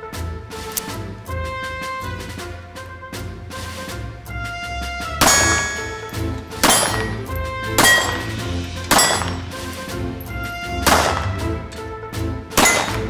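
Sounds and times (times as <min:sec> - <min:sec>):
background music: 0:00.0 - 0:13.0
pistol shots: 0:05.2 - 0:11.8, 0:12.6 - 0:13.0.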